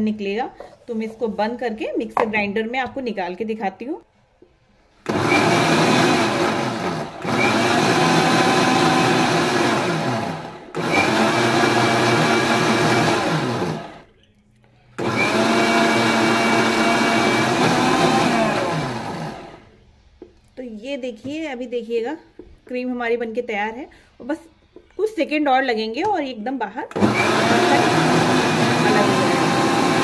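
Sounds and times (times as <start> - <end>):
electric mixer grinder whining: 5.0 - 14.0, 15.0 - 19.6, 26.9 - 30.0.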